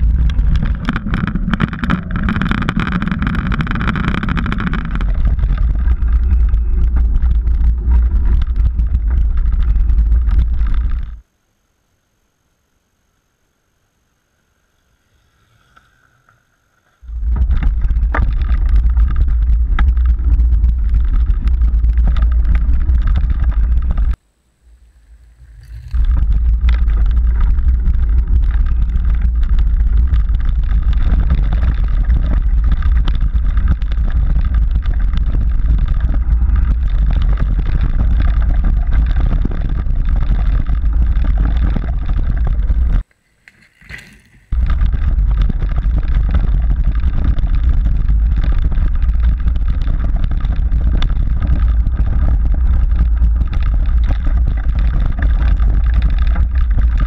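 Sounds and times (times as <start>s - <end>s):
bike knocks and rattles: 0.0s - 11.2s, 17.1s - 24.2s, 25.7s - 43.1s, 43.7s - 57.0s
wind and trail vibration rumble: 0.0s - 11.3s, 17.0s - 43.1s, 44.2s - 57.0s.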